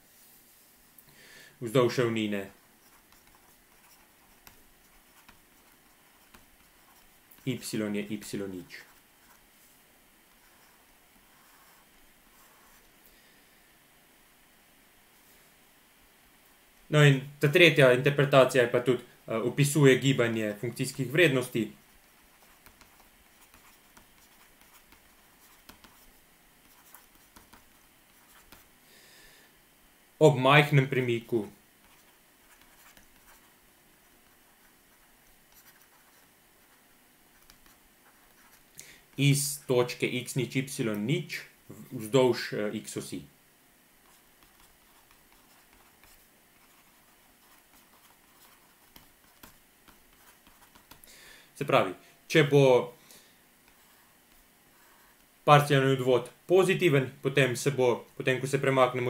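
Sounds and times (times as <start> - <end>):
stylus scratching on a tablet: 2.0 - 12.9, 20.2 - 28.8, 30.8 - 38.7, 44.0 - 51.0, 53.6 - 55.3.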